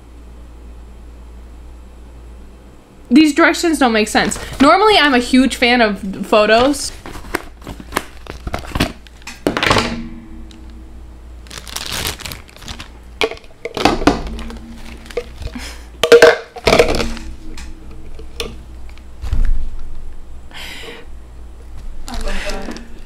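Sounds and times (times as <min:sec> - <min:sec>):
plastic packaging crinkling and tearing: 0:06.9 - 0:09.3, 0:11.4 - 0:15.6.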